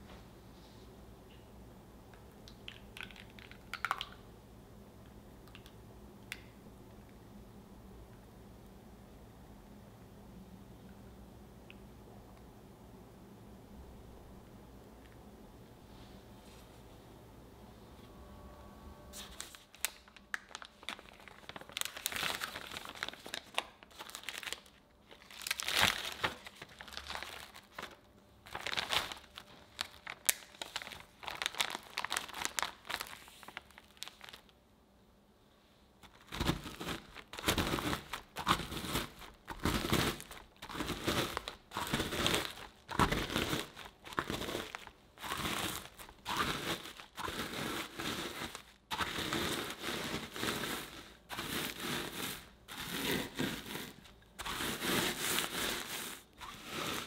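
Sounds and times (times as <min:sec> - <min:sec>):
plastic bag crinkling: 0:02.7 - 0:04.2, 0:19.2 - 0:34.6, 0:36.0 - 0:57.0
rolling pin grinding biscuits: 0:36.2 - 0:57.0.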